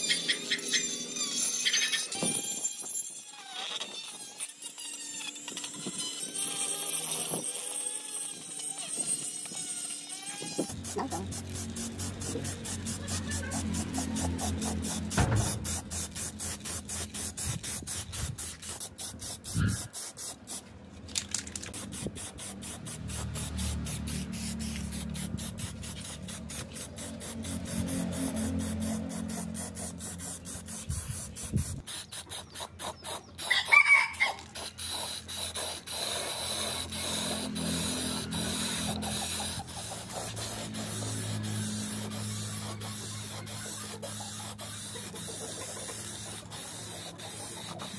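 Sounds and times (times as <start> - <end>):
aerosol spray paint hissing: 9.1 - 20.7, 21.7 - 33.7, 34.3 - 47.9.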